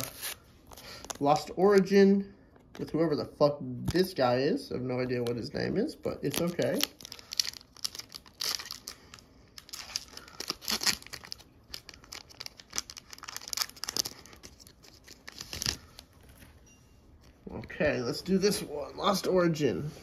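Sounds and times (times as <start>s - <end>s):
foil pack crinkling: 6.0s - 16.4s
foil ripping: 6.2s - 16.0s.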